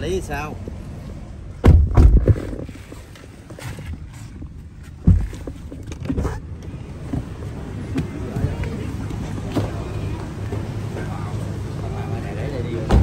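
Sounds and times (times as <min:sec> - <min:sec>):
vehicle rumble inside car: 0:00.0 - 0:13.0
thumps: 0:01.6 - 0:06.4.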